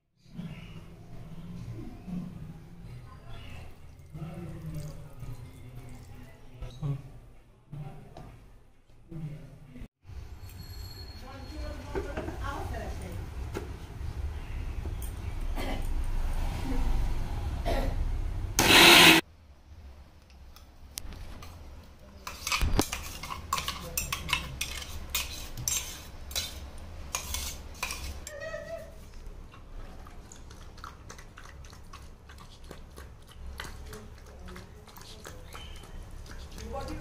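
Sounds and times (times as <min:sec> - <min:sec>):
mixer grinder running: 0:18.6 - 0:19.2
spoon scraping steel jar: 0:22.2 - 0:28.3.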